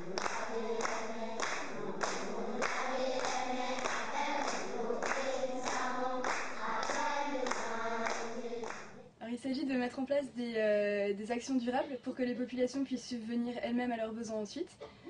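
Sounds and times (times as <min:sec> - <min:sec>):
children clapping in time: 0:00.0 - 0:09.0
children singing together: 0:00.0 - 0:09.0.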